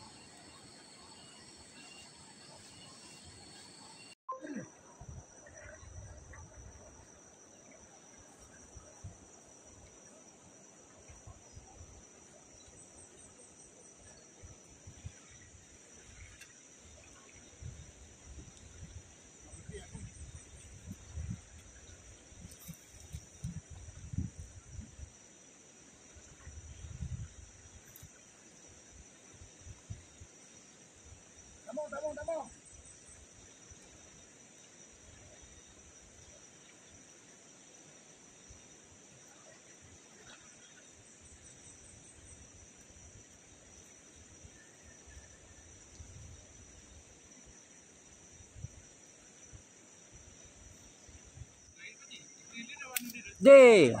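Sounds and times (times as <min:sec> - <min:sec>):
insects chirring: 0:00.0 - 0:54.0.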